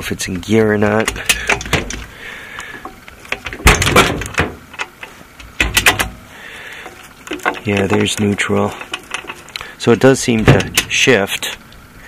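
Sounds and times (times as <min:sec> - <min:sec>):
gear-shift lever clicks and clunks: 0:05.5 - 0:06.2.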